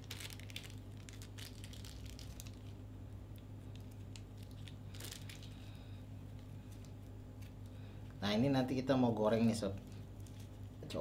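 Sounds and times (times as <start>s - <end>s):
plastic bag rustle: 0.0s - 2.8s, 3.6s - 7.6s
plastic bag crinkling: 0.0s - 7.6s
steady low hum: 0.0s - 11.0s.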